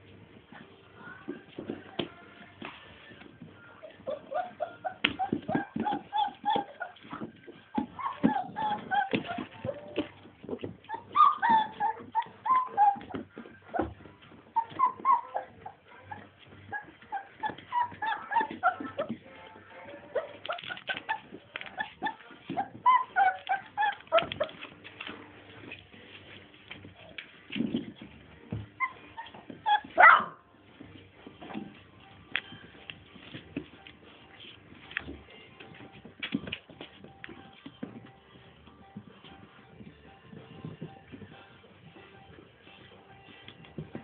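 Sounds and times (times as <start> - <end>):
puppies squeaking and yipping: 3.8 - 19.2, 19.9 - 25.0, 28.7 - 30.4
taps and scuffles: 5.0 - 19.4, 30.7 - 38.4.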